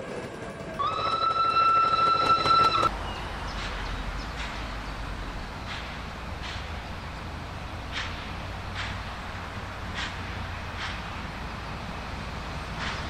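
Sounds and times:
steam locomotive whistle: 0:00.8 - 0:02.9.

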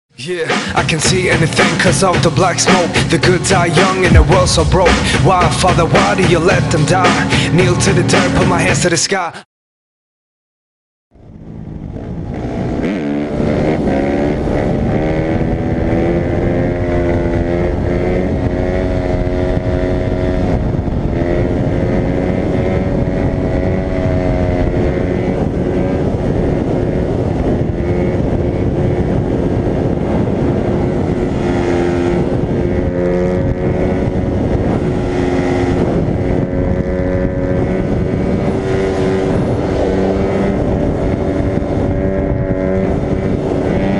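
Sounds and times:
dirt bike engine revving: 0:00.6 - 0:08.6, 0:12.0 - 0:43.9.

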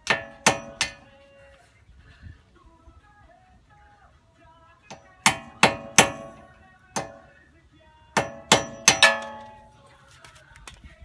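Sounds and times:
hammer striking metal hub: 0:00.0 - 0:01.1, 0:04.9 - 0:07.3, 0:08.2 - 0:09.7.

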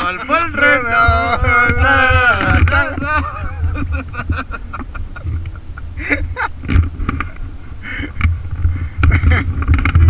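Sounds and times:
muffled voices: 0:00.0 - 0:03.8
wind buffeting microphone: 0:00.0 - 0:10.0.

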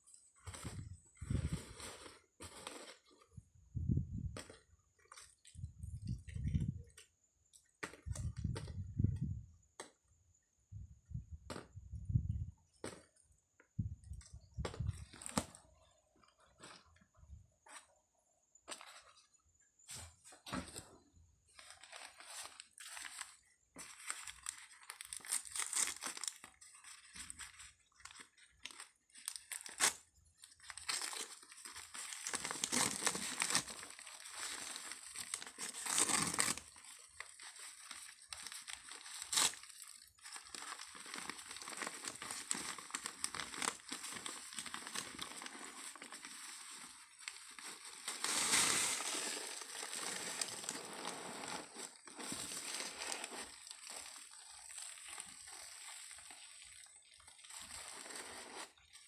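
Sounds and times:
paper wrapping crinkling: 0:21.5 - 0:59.0
sharp paper crackles: 0:21.6 - 0:59.0.

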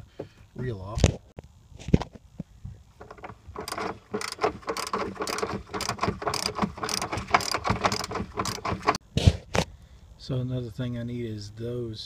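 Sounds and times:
ratchet wrench clicking: 0:03.0 - 0:09.0.

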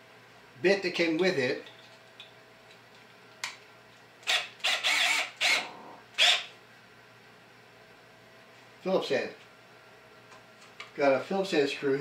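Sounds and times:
drill chuck rasping: 0:04.2 - 0:06.5.

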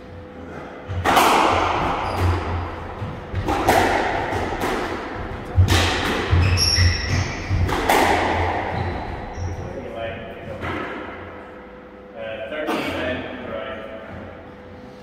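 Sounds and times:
footsteps thudding: 0:00.9 - 0:09.4
squash ball striking: 0:00.9 - 0:09.5
sneaker squeaking on wooden floor: 0:01.8 - 0:03.6, 0:05.2 - 0:09.9.

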